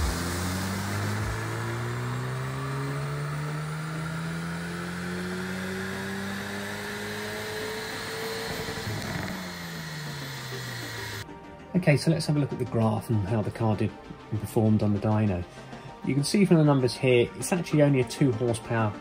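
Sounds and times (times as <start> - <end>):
car engine revving under load: 0.0 - 11.2.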